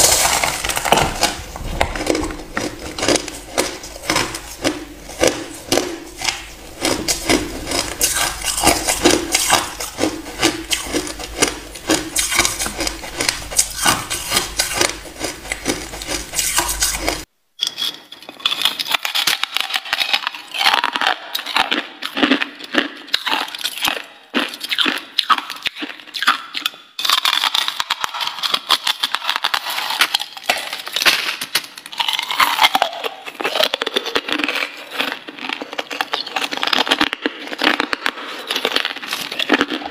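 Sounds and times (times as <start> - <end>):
ice being chewed: 0.0 - 39.9.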